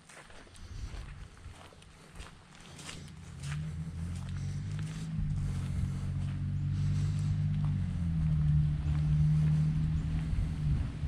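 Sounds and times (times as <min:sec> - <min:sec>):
vehicle engine hum: 0:00.4 - 0:11.0.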